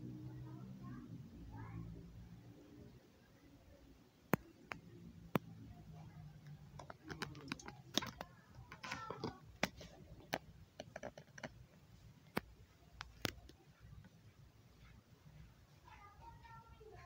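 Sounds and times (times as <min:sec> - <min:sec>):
faint low hum: 0:00.0 - 0:17.0
sharp clicks and taps: 0:04.3 - 0:05.7, 0:06.4 - 0:14.2.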